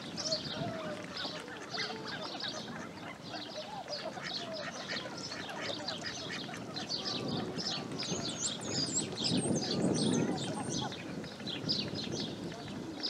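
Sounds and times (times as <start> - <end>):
high bird calls chatter: 0.1 - 13.0
ducks calling: 0.2 - 9.0.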